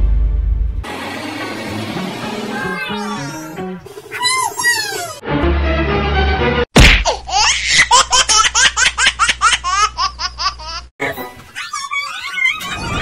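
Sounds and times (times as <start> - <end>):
low hum: 0.0 - 1.9
high-pitched child-like laughter: 11.5 - 13.0.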